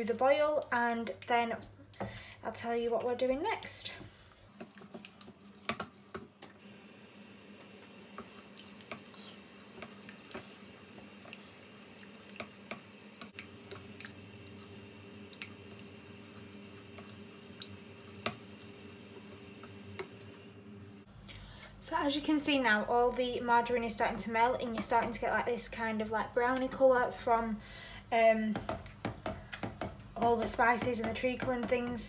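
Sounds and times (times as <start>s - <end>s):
spoon stirring thick mix: 3.2s - 6.4s, 28.6s - 32.0s.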